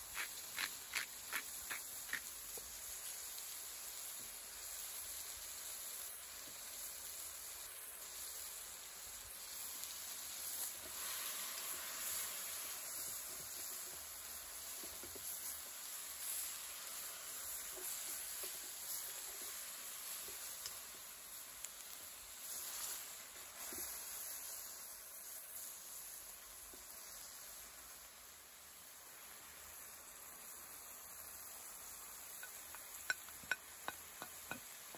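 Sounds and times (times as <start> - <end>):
chicken sizzling in oil: 0.0 - 34.9
spatula clicking in pan: 32.3 - 34.8.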